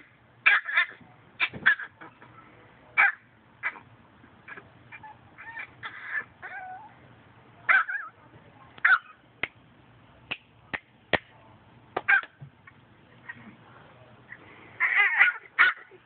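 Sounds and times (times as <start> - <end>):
animal crying: 4.5 - 7.0, 14.8 - 16.0.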